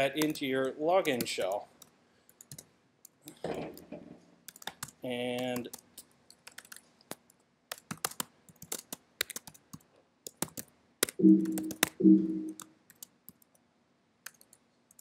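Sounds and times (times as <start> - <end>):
laptop keyboard typing: 1.0 - 2.7, 4.5 - 13.6, 14.2 - 15.0
short low tones: 11.2 - 12.6.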